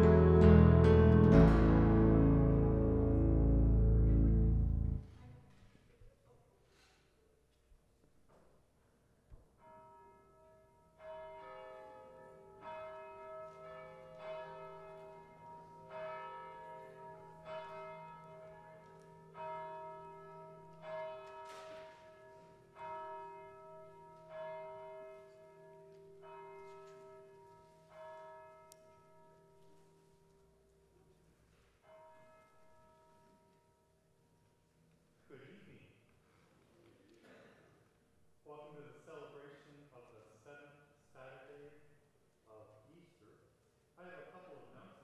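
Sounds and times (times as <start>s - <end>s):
church bell tolling: 0.0s - 5.1s, 9.6s - 30.0s, 31.8s - 33.5s.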